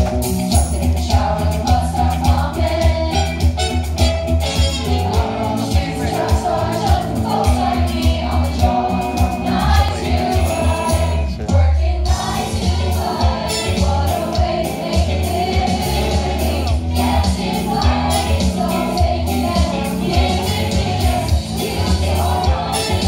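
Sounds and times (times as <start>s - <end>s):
band playing: 0.0s - 23.0s
cast singing together: 4.6s - 23.0s.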